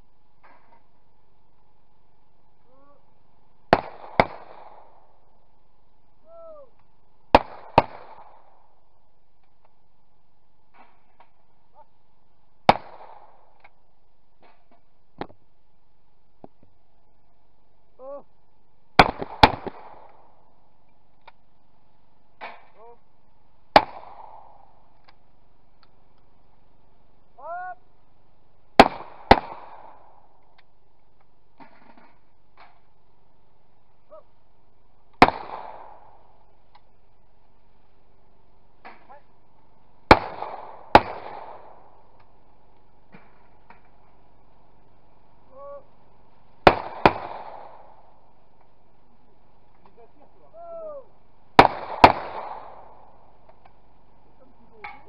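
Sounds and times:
shotgun shots: 0:03.7 - 0:05.2, 0:07.3 - 0:08.7, 0:12.7 - 0:13.6, 0:19.0 - 0:20.4, 0:23.7 - 0:24.8, 0:28.8 - 0:30.2, 0:35.2 - 0:36.4, 0:40.1 - 0:42.2, 0:46.6 - 0:48.2, 0:51.6 - 0:53.3
person shouting: 0:06.2 - 0:06.8, 0:18.0 - 0:18.3, 0:27.4 - 0:27.8, 0:45.5 - 0:45.9, 0:50.4 - 0:51.1.

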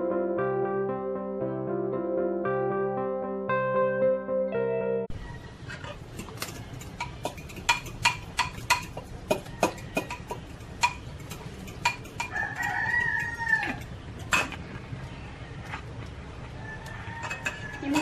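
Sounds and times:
rooster crowing: 0:05.1 - 0:05.9, 0:12.2 - 0:13.9, 0:16.6 - 0:18.0
chickens clucking: 0:05.1 - 0:14.6.

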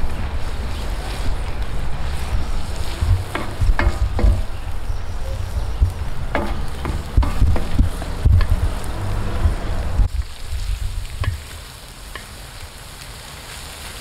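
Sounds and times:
meat and onion sizzling in pan: 0:00.0 - 0:09.3, 0:10.1 - 0:14.0
low rumble: 0:00.0 - 0:11.3
wooden spatula scraping metal: 0:00.5 - 0:04.6, 0:05.4 - 0:08.7.

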